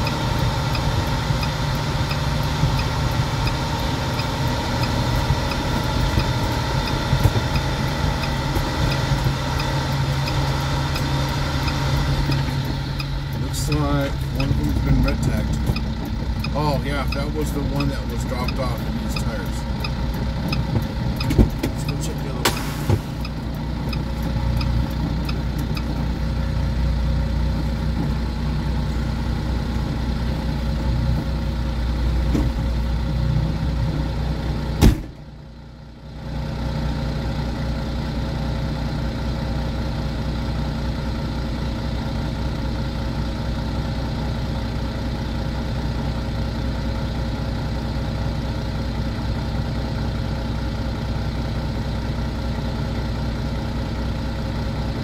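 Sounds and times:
diesel engine idling: 0.0s - 55.0s
sharp knock: 34.8s - 35.1s.

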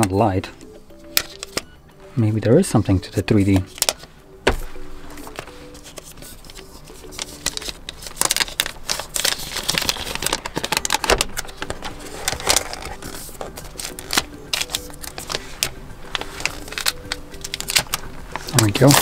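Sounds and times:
plastic wrap rustling and crackling: 3.6s - 19.0s.

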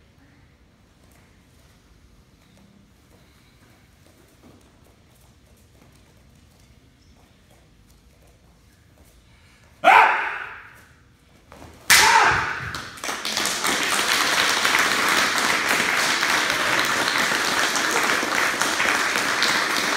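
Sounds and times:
audience applause and cheering: 11.9s - 19.9s.

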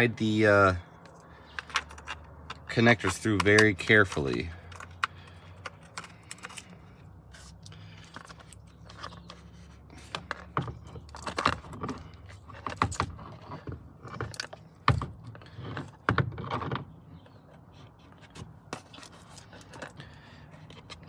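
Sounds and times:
plastic and metal parts clicking: 1.0s - 6.8s.

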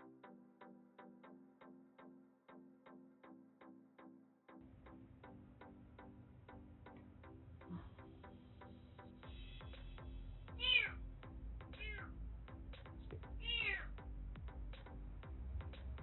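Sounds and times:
background music with ticking beat: 0.0s - 16.0s
kitten meowing: 10.6s - 11.0s, 11.8s - 12.1s, 13.4s - 13.9s.

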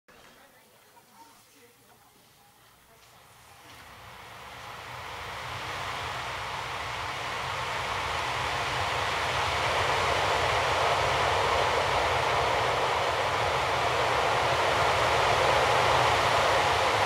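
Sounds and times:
steady rushing noise: 3.9s - 17.0s.

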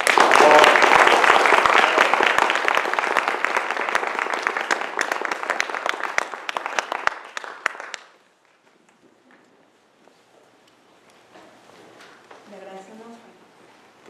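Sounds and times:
audience applauding: 0.0s - 8.3s.

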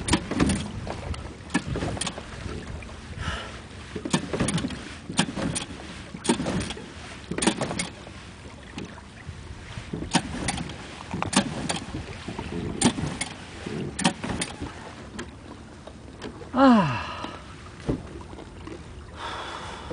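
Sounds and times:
outboard motor recoil starter rattling: 0.0s - 9.0s, 9.9s - 16.4s.

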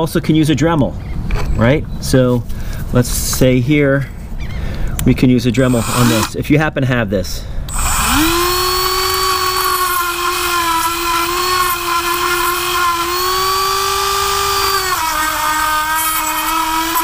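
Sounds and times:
rotary tool grinding: 5.6s - 6.4s, 7.7s - 17.0s.

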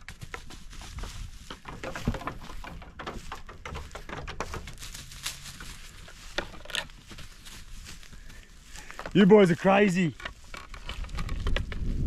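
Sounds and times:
hooves knocking on wood: 0.0s - 7.4s
hooves scuffling on straw: 0.0s - 11.0s.

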